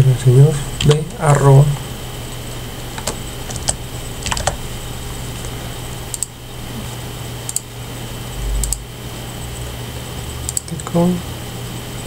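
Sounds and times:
low electrical hum: 0:00.0 - 0:12.0
keyboard and mouse clicks: 0:03.0 - 0:04.6, 0:06.1 - 0:06.3, 0:07.5 - 0:07.7.

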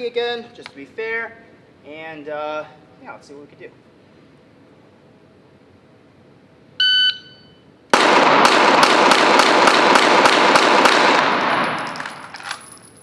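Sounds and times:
shot timer beep: 0:06.8 - 0:07.7
pistol gunshots echoing: 0:07.9 - 0:12.3.

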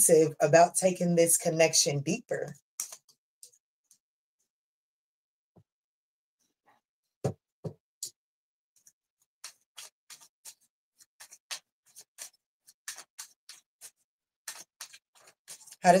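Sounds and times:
card deck being shuffled: 0:09.4 - 0:10.6, 0:11.2 - 0:15.9.

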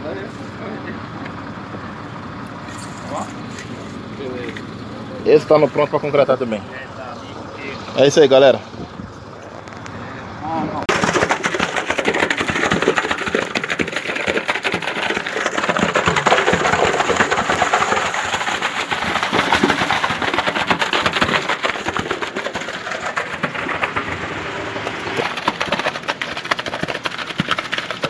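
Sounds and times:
truck engine running: 0:00.0 - 0:28.0
concrete rushing down chute: 0:10.8 - 0:28.0.

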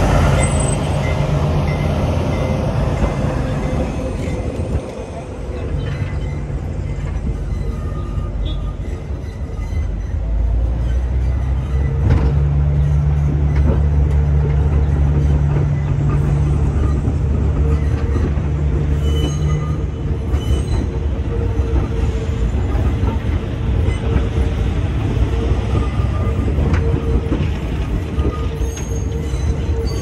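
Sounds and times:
subway cars rolling on rails: 0:00.0 - 0:30.0.

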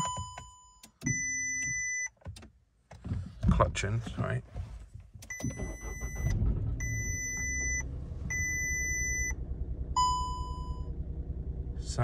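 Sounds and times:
car engine humming: 0:04.8 - 0:12.0.

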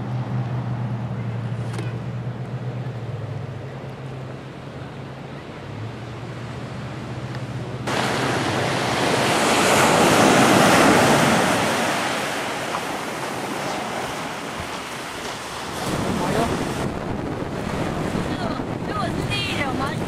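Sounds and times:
surf breaking on rocky shore: 0:07.8 - 0:20.0.

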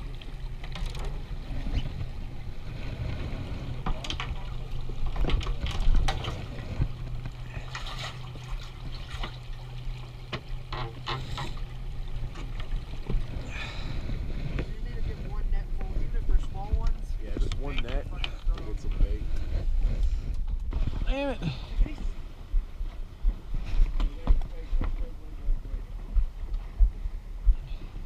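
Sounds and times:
water sloshing against boat hull: 0:00.0 - 0:24.7
low hum: 0:00.0 - 0:28.0
fishing rods clicking and knocking: 0:00.6 - 0:01.2.

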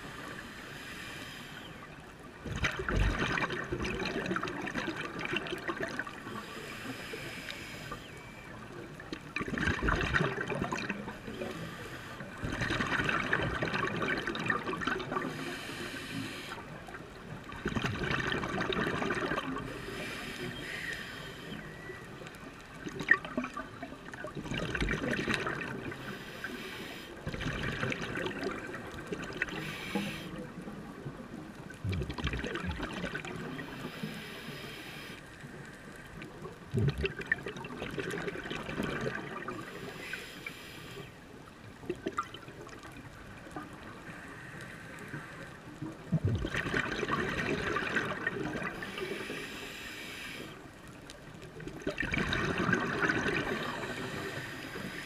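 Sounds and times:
regulator air hiss: 0:00.0 - 0:01.8, 0:06.3 - 0:08.2, 0:11.5 - 0:12.3, 0:15.3 - 0:16.7, 0:19.7 - 0:21.8, 0:26.0 - 0:27.2, 0:29.6 - 0:30.4, 0:33.6 - 0:36.0, 0:39.6 - 0:41.2, 0:48.8 - 0:50.6, 0:53.8 - 0:55.0
exhaled bubbles rushing underwater: 0:02.4 - 0:06.5, 0:08.5 - 0:11.5, 0:12.3 - 0:15.6, 0:16.8 - 0:19.8, 0:22.7 - 0:26.1, 0:27.2 - 0:34.0, 0:36.4 - 0:39.7, 0:45.8 - 0:49.1, 0:51.4 - 0:55.0.

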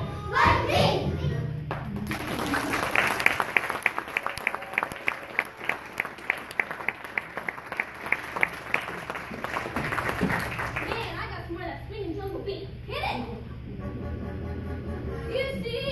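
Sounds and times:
close steady clapping: 0:01.7 - 0:11.2
audience applauding: 0:01.7 - 0:11.3.

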